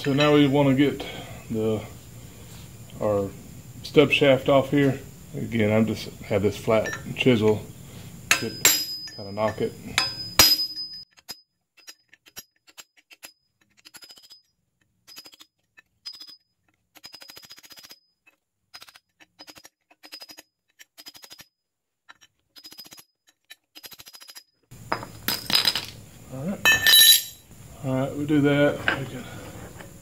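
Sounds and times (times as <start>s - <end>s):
ratchet wrench clicking: 10.0s - 14.4s, 15.1s - 16.4s, 17.0s - 18.0s, 18.8s - 21.5s.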